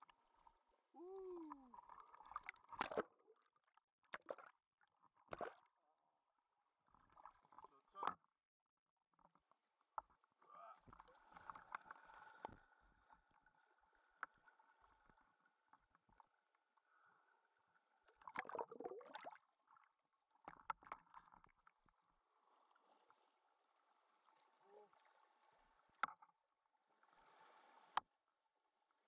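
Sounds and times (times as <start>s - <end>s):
water sloshing and splashing: 1.0s - 5.7s, 18.0s - 21.6s.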